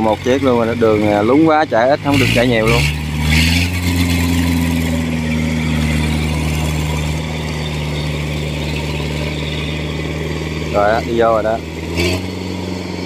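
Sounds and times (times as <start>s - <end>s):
small crawler engine running: 0.0s - 13.0s.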